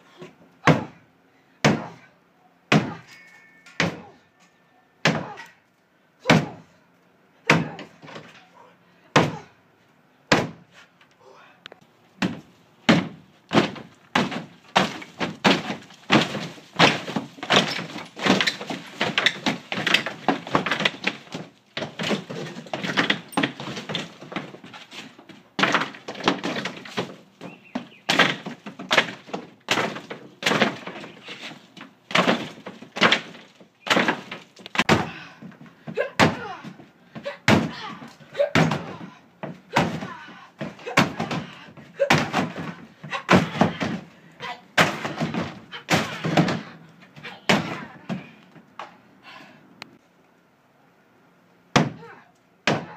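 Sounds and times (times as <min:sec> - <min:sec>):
kicks thudding against wall panel: 0:10.3 - 0:10.6, 0:12.2 - 0:44.1, 0:44.8 - 0:46.8, 0:47.4 - 0:48.3, 0:51.7 - 0:52.9.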